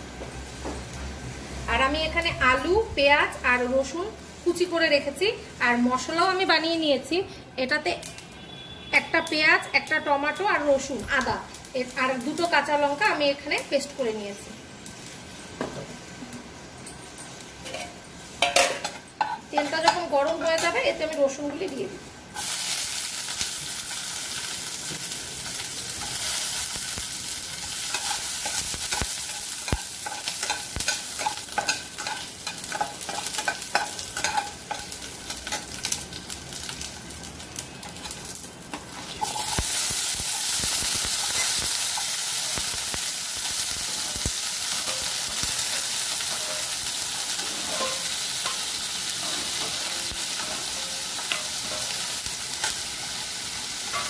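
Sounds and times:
food sizzling in oil: 0.4s - 7.1s, 7.7s - 54.0s
spatula scraping a pan: 46.3s - 48.6s.

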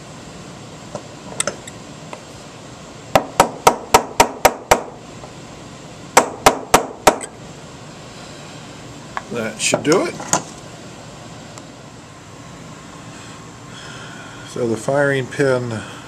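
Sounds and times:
hammer tapping metal punch: 6.2s - 7.3s.

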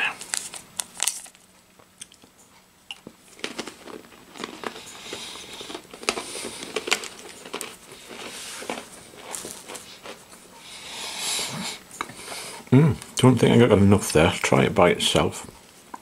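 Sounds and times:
plastic wrapper crinkling: 0.0s - 1.5s, 3.2s - 10.3s
crunching hard cracker: 3.2s - 10.2s.

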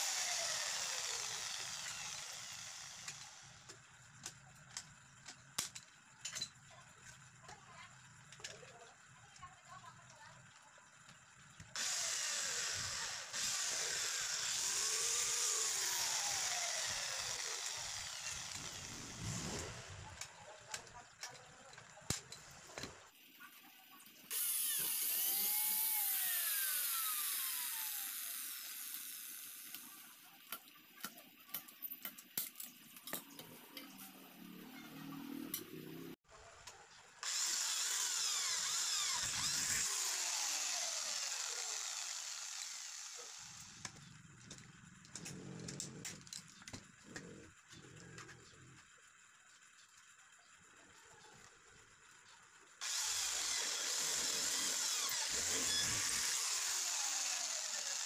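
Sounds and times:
snips cutting metal: 0.0s - 6.5s, 11.8s - 23.0s, 24.3s - 36.1s, 36.7s - 46.8s, 52.8s - 58.0s.

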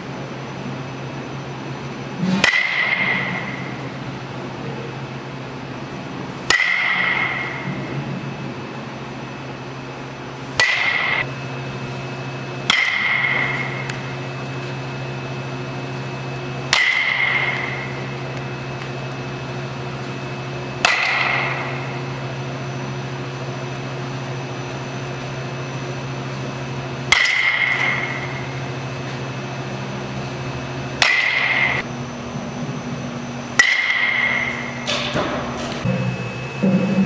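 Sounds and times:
steady low hum: 0.0s - 37.0s
baseball bat hitting balls: 2.2s - 4.2s, 5.7s - 8.4s, 10.1s - 22.8s, 26.3s - 31.9s, 33.5s - 36.0s.

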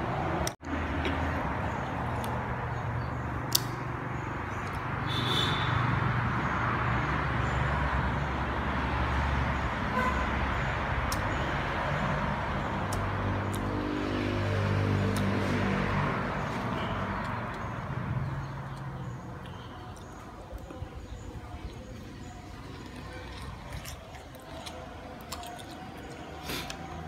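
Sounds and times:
sharp clicks: 3.5s - 3.8s.

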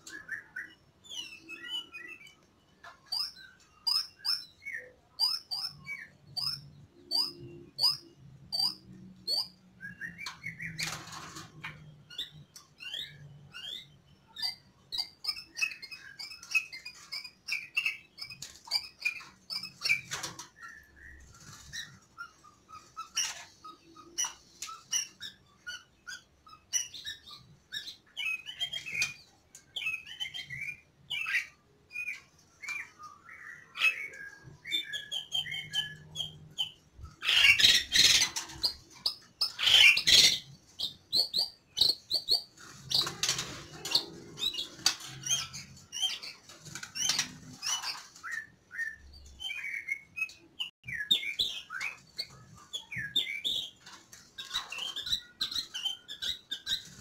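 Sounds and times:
bird chirps and whistled notes: 11.9s - 43.2s.

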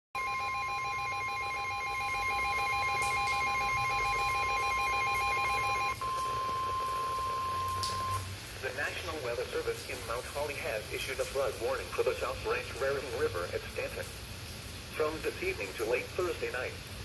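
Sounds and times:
steady alarm beep: 0.2s - 8.2s
two-tone alert beeping: 0.2s - 8.2s.

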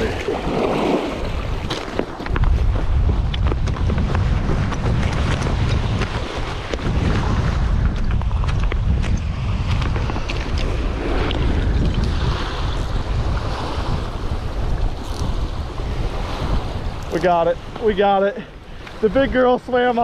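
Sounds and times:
waves washing onto rocky shore: 0.0s - 2.3s, 4.2s - 20.0s
wind buffeting microphone: 0.0s - 20.0s
footsteps on loose shale: 0.8s - 13.0s.

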